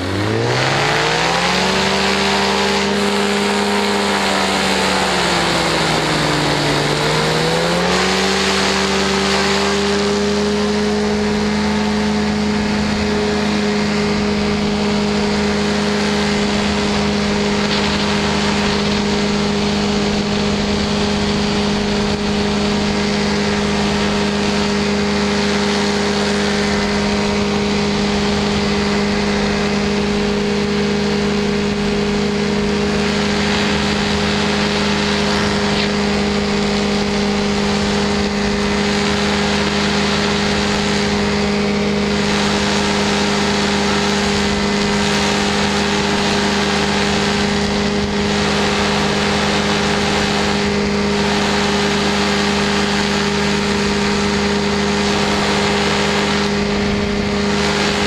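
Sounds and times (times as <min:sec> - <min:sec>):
light aircraft engine and propeller: 0:00.0 - 0:58.0
rush of air noise: 0:00.0 - 0:58.0.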